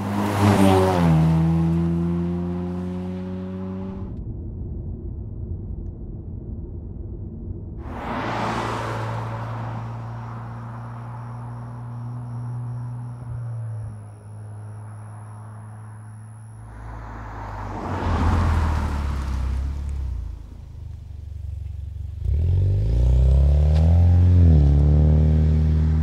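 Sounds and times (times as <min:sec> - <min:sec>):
car passing by: 0:00.0 - 0:04.0, 0:07.8 - 0:20.9
car accelerating with exhaust note: 0:00.0 - 0:04.2, 0:08.0 - 0:26.0.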